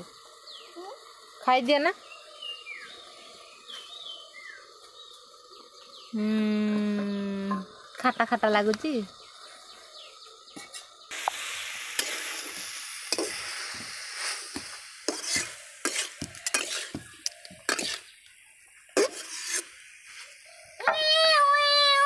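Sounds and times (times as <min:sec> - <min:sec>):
vegetables sizzling in oil: 0:00.0 - 0:09.7, 0:10.3 - 0:22.0
metal ladle scraping pan: 0:15.1 - 0:17.0, 0:17.6 - 0:18.1, 0:19.0 - 0:19.8.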